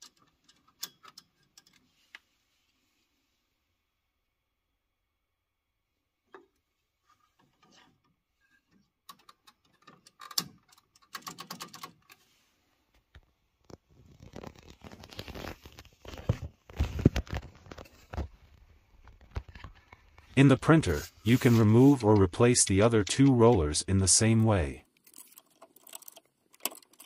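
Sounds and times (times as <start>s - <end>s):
small plastic clicks and rattles: 8.7s - 12.2s, 24.8s - 27.0s.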